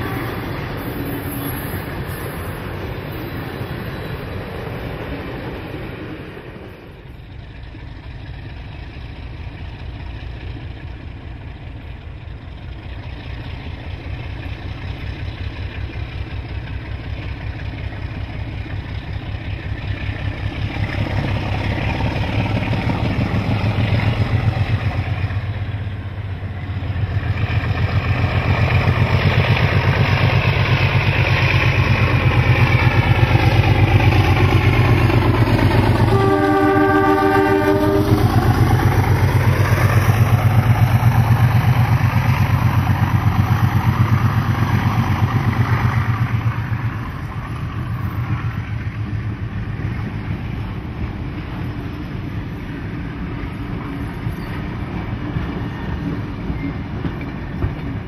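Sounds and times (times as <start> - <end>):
diesel locomotive engines: 0.0 - 58.0
locomotive horn: 36.0 - 38.3.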